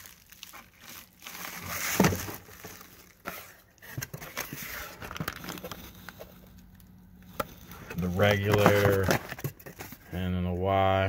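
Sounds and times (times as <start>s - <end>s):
cardboard and packing rustling: 0.0s - 11.0s.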